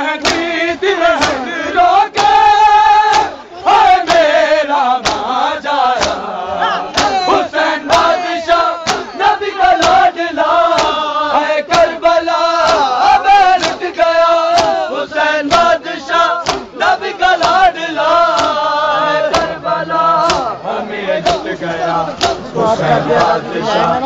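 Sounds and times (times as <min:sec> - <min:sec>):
men chanting in unison: 0:00.0 - 0:24.0
hands striking chests: 0:16.4 - 0:16.7.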